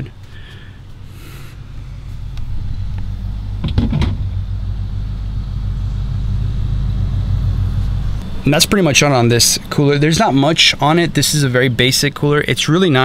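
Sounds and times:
fridge compressor humming: 0.0 - 11.6
brief knocks: 3.6 - 4.4.

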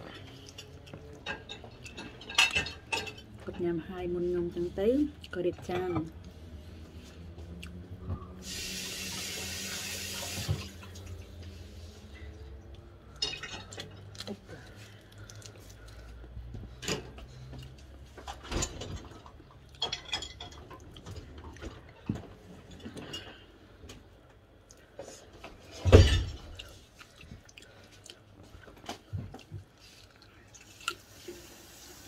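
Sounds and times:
low steady hum: 0.0 - 32.0
kitchen tap running: 8.4 - 11.0.

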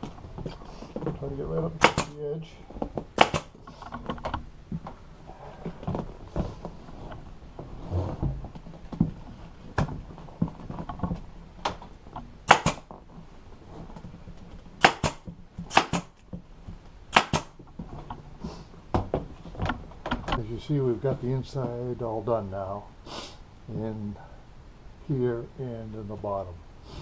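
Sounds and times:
handling noises: 0.0 - 22.0
pneumatic stapler shots: 1.8 - 2.2, 3.2 - 3.6, 12.4 - 12.9, 14.8 - 16.2, 17.1 - 17.6.

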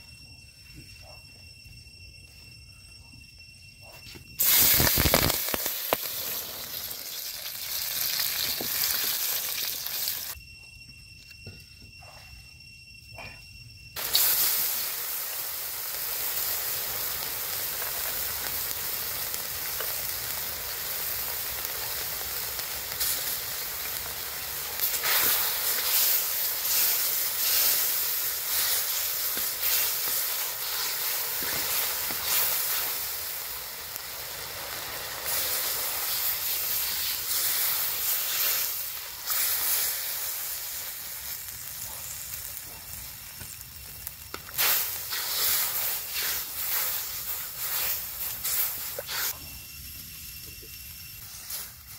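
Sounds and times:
food sizzling in a hot pan: 4.4 - 10.4, 14.0 - 51.9.

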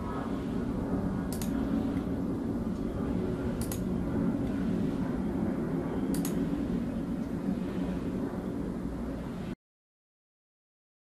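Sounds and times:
low droning hum: 0.0 - 9.6
computer mouse double clicks: 3.6 - 3.8, 6.1 - 6.4.

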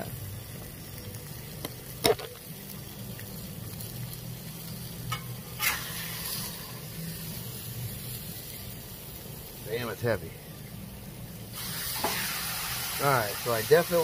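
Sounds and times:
chicken sizzling on a griddle: 0.0 - 14.0
metal spatula scraping griddle: 5.1 - 6.8.

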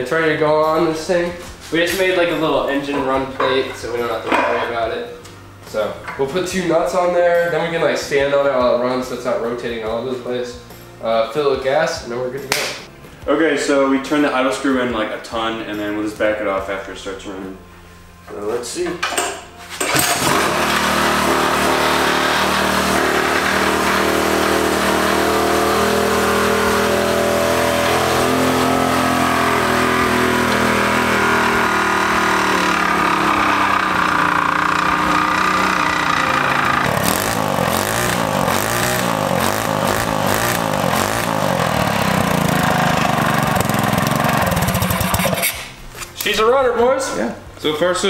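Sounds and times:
single-cylinder engine running: 19.8 - 45.6.

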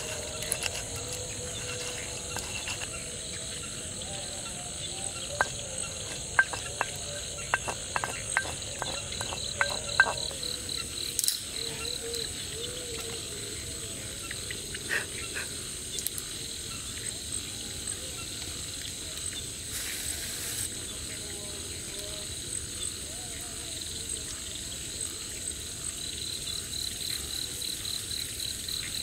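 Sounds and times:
night insects chirring: 0.0 - 29.0
pestle knocking in mortar: 5.3 - 10.5.

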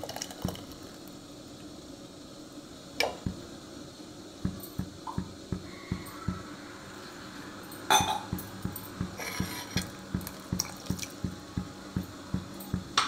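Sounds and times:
spoon knocking pot: 7.9 - 13.0.

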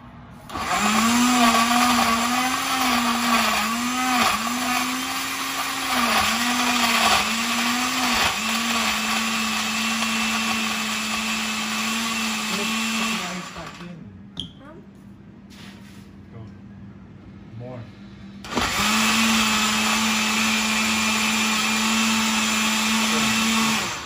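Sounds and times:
blender motor humming: 0.5 - 13.9, 18.4 - 24.0.

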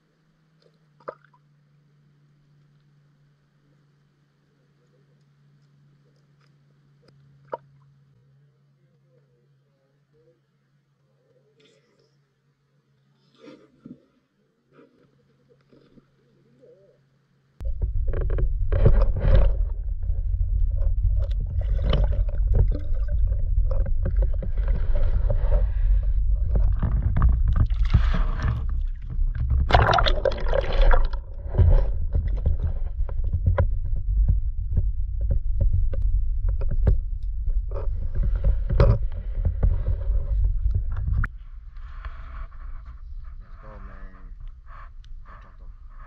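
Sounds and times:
muffled underwater rumble: 0.0 - 46.0
water splashing: 21.2 - 25.6, 26.5 - 32.8
water knocking against camera: 26.5 - 41.3.

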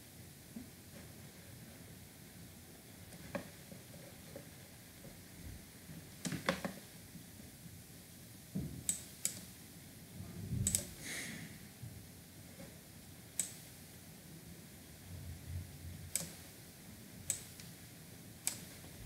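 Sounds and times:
computer mouse clicks: 8.8 - 9.5, 10.6 - 10.9, 13.4 - 13.7, 16.1 - 16.5, 17.3 - 17.8, 18.4 - 18.8.

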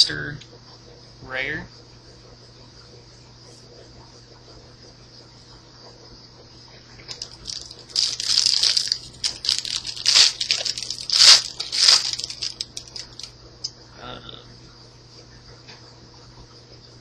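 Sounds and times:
foil wrapper crinkling: 7.1 - 13.3
foil wrapper ripping: 7.1 - 13.3.

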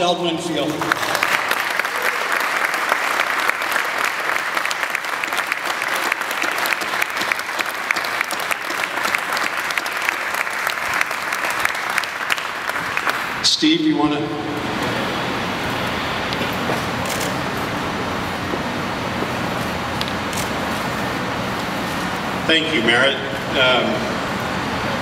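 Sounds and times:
audience applause: 0.6 - 13.4.

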